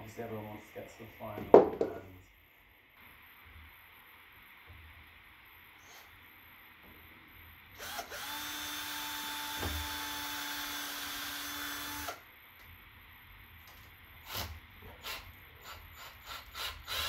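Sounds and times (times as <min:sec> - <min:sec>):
cordless drill boring plastic pipe: 0:07.8 - 0:12.2, 0:14.2 - 0:17.0.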